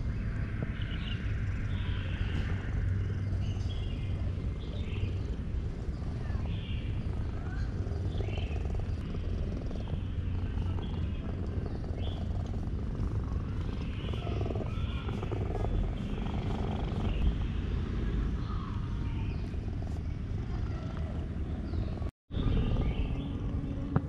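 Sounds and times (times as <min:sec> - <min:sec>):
cat purring: 0:00.6 - 0:18.2, 0:19.3 - 0:22.1.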